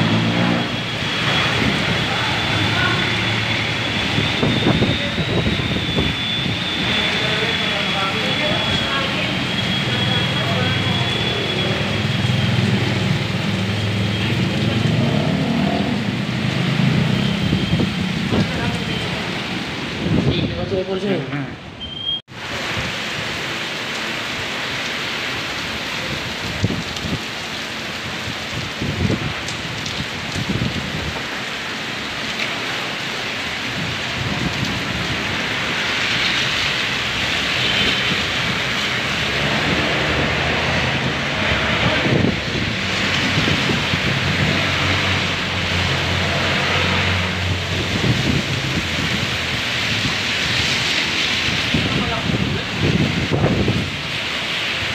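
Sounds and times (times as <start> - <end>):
low rumbles: 0.0 - 20.8
heavy rain on pavement: 0.0 - 54.9.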